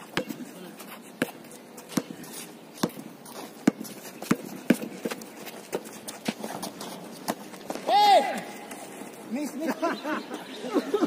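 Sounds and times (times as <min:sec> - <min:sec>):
basketball bouncing on asphalt: 0:00.0 - 0:00.4, 0:01.2 - 0:08.0.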